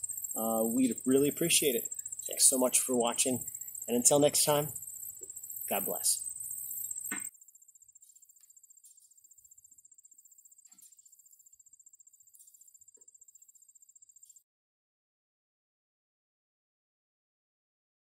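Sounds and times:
insects trilling: 0:00.0 - 0:14.4.

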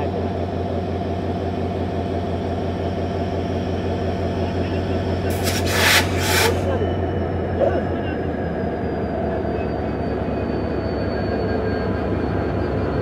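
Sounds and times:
diesel locomotive engine throbbing: 0:00.0 - 0:13.0
hissing: 0:05.3 - 0:06.7.

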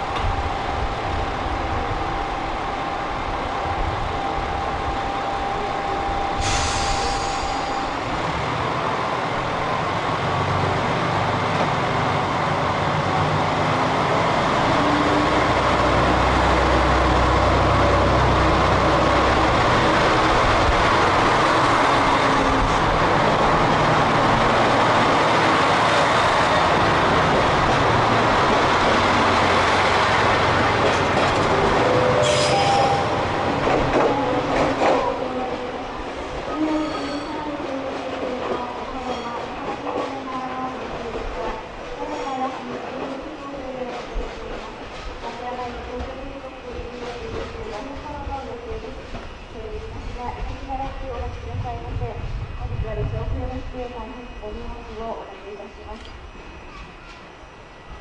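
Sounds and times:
diesel train engine rumbling: 0:00.0 - 0:58.0
short hiss: 0:06.4 - 0:07.8.

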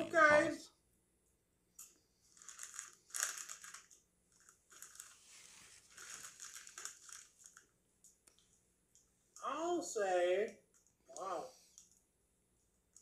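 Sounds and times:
plastic snack bag crinkling: 0:02.2 - 0:07.7.

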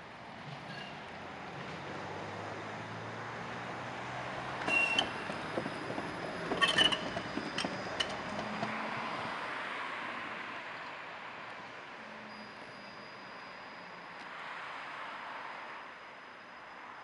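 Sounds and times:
tram running hum: 0:00.0 - 0:14.5
high-pitched rail squeals: 0:00.6 - 0:01.0, 0:04.6 - 0:09.2, 0:12.0 - 0:14.5, 0:15.6 - 0:17.0.

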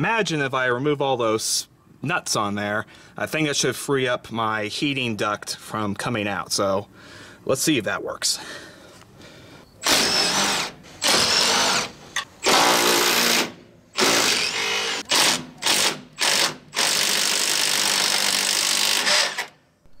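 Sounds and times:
cordless power tool spinning nuts: 0:09.8 - 0:19.6.

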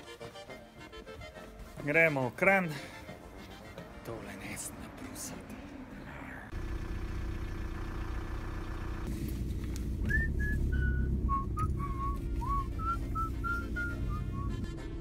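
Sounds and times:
car engine humming: 0:02.8 - 0:15.0
man whistling a tune: 0:10.0 - 0:14.7.

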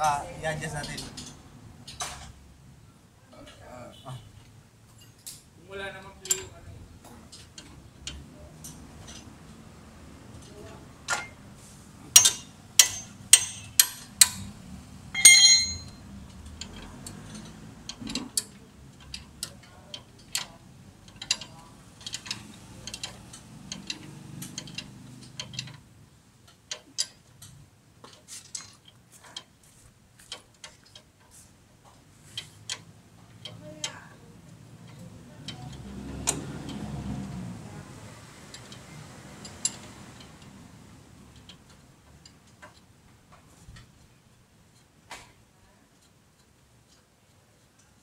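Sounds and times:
ringing metal clink: 0:12.2 - 0:13.9, 0:15.2 - 0:16.0.

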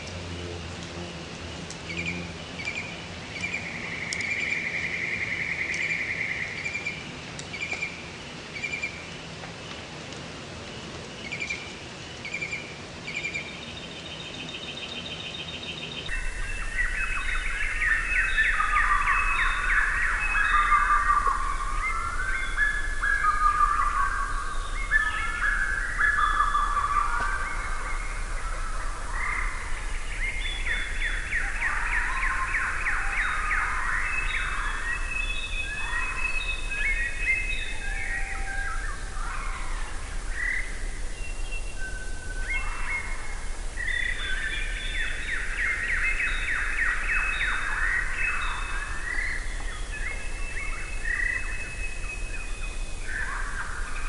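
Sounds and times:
faint low hum: 0:00.0 - 0:05.8
songbirds singing and calling: 0:00.0 - 0:54.0.

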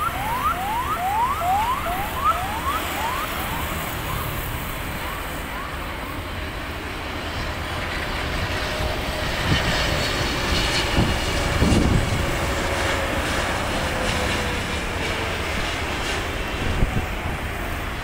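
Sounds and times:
jet engines roaring: 0:00.0 - 0:18.0.

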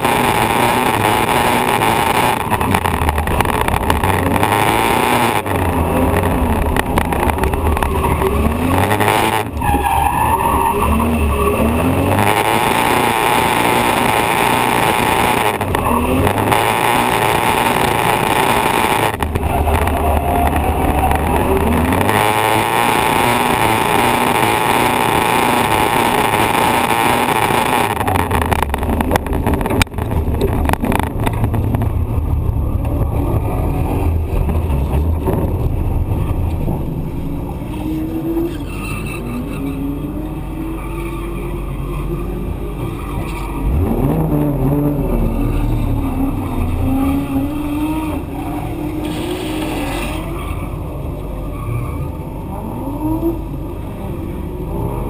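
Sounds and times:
car engine revving: 0:00.0 - 0:55.0
tyre and road noise: 0:00.0 - 0:55.0.

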